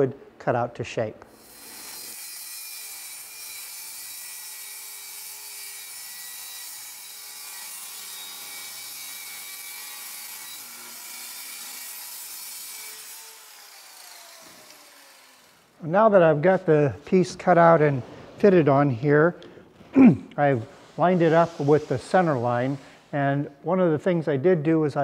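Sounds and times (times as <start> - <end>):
saw spinning down: 1.4 - 3.4, 10.3 - 15.8
circular saw cutting plywood: 1.4 - 15.8.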